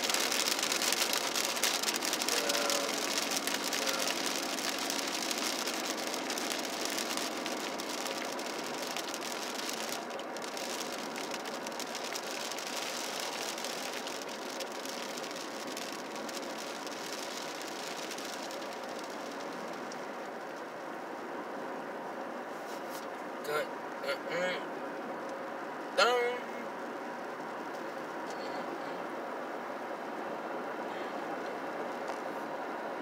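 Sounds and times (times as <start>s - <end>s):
tyres hissing on wet road: 0.0s - 20.8s
rain ticking on car windshield: 0.0s - 33.0s.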